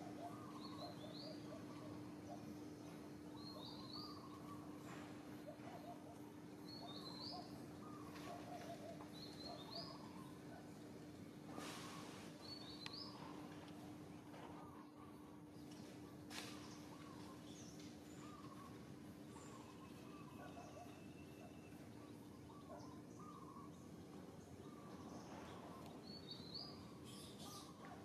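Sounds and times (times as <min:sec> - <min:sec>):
faint lower chirping: 0:16.5 - 0:27.8.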